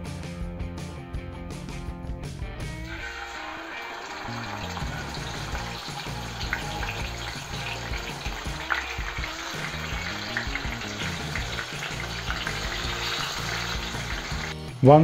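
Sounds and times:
fish sizzling in hot oil: 2.9s - 14.6s
sharp oil crackles: 2.9s - 14.6s.

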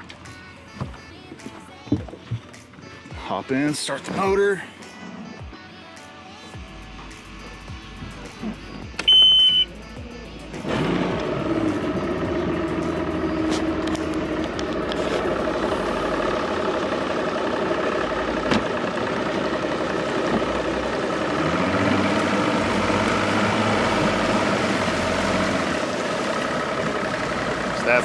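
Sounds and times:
outboard motor idling: 6.5s - 28.0s.

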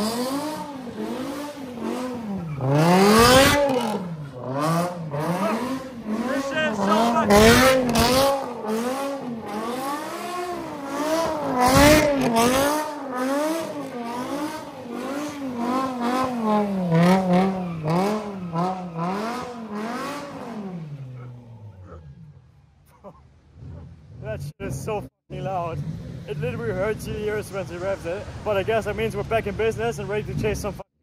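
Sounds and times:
car engine revving hard: 0.0s - 21.6s.

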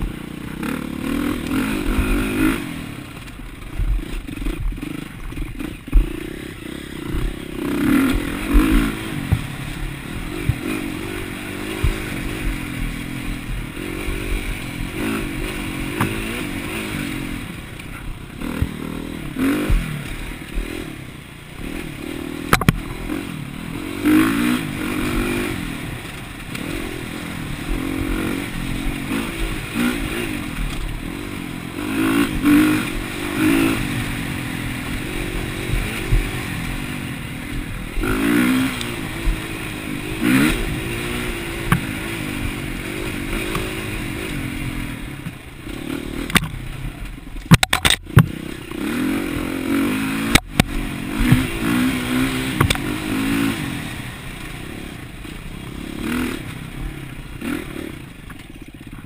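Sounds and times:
dirt bike engine revving: 0.0s - 59.0s
sharp clacks: 47.4s - 48.4s.

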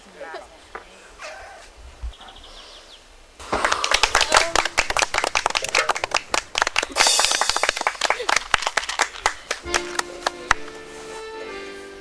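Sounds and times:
voices: 3.4s - 8.4s
people clapping briskly: 3.5s - 10.9s.

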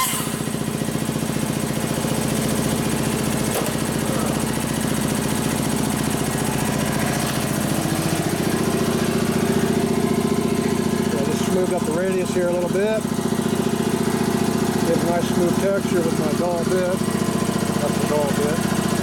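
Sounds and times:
hand grinder grinding metal: 0.0s - 0.7s.

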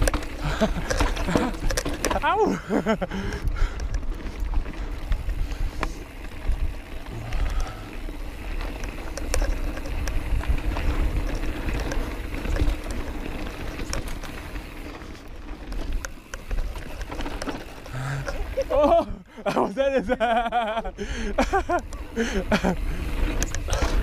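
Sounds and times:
bike rattling over rocks: 0.0s - 19.1s, 19.8s - 24.0s
tyres rumbling over dirt: 0.0s - 19.1s, 21.5s - 24.0s
wind buffeting microphone: 2.9s - 14.8s.

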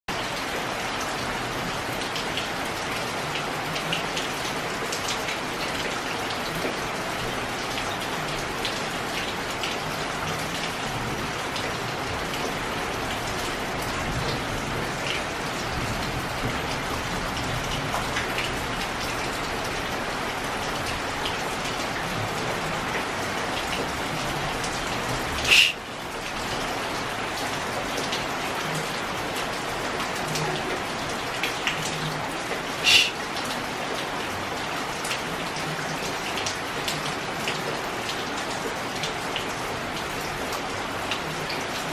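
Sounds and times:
heavy rain: 0.1s - 41.9s
water dripping on metal roof: 0.1s - 41.9s.

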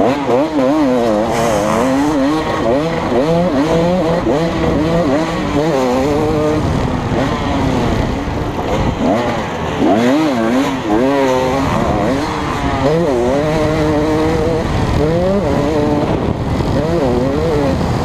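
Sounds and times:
motocross bike engine revving: 0.0s - 18.0s.

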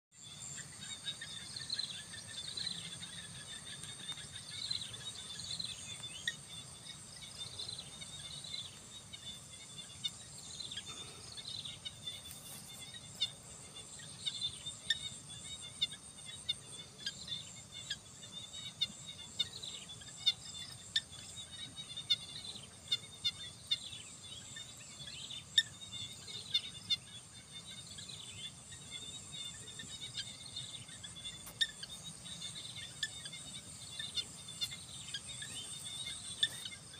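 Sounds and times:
high insect drone: 0.2s - 36.9s
falling bird chirps: 29.5s - 36.9s.

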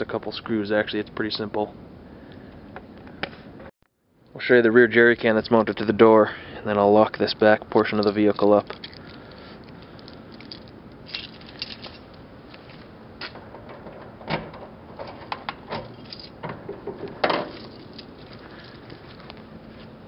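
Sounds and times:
keys jingling: 7.9s - 12.7s, 15.9s - 16.4s, 17.5s - 18.8s.

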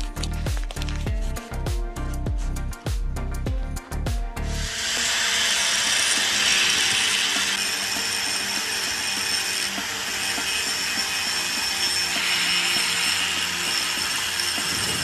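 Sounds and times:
angle grinder grinding ceramic: 4.4s - 15.0s.

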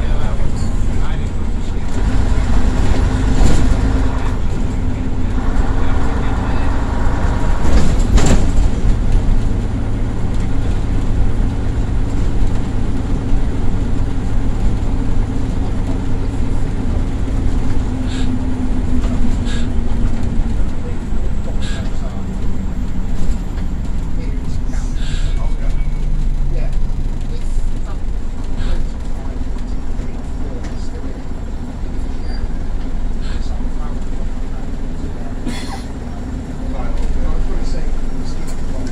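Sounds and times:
bus body knocks and rattles: 0.0s - 5.4s, 7.3s - 24.6s
bus diesel engine droning: 0.0s - 38.9s.

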